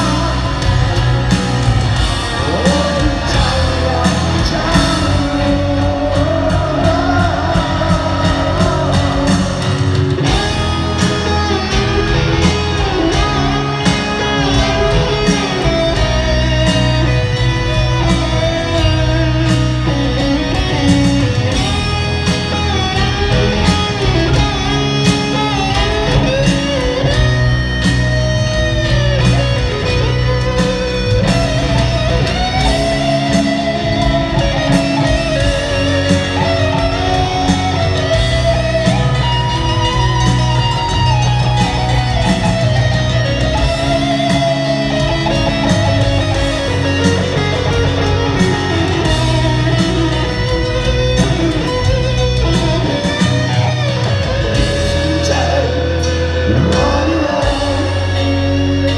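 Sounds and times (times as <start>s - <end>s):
bass and drums: 0.0s - 58.9s
electric guitar solo: 0.0s - 58.9s.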